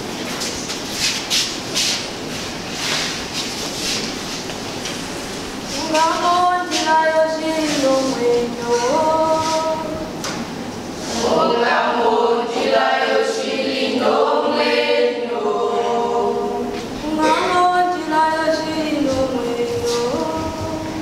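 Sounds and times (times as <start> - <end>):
choir singing a cappella: 11.0 - 20.6.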